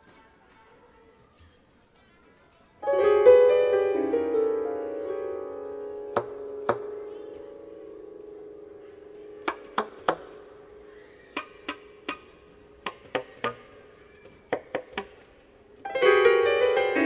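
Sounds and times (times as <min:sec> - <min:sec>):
percussive clicks and taps: 0:06.2 - 0:06.9, 0:09.4 - 0:10.3, 0:11.4 - 0:15.2.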